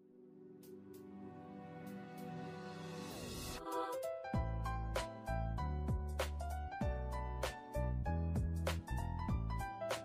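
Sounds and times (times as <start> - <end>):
background music with steady beat: 0.4 - 10.0.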